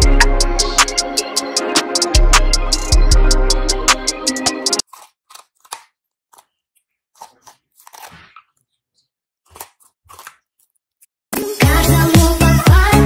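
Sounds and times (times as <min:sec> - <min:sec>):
music: 0:00.0 - 0:04.8, 0:11.4 - 0:13.0
teeth crunching on bone: 0:04.8 - 0:08.7, 0:09.4 - 0:11.1
dog gnawing a bone: 0:07.1 - 0:08.6.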